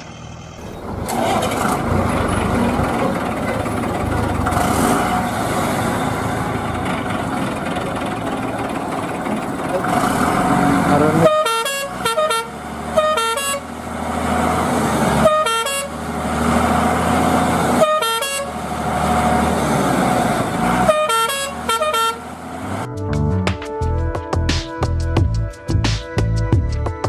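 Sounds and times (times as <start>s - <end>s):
truck engine running: 0.0s - 23.3s
musical horn notes: 10.9s - 13.6s, 20.8s - 22.3s.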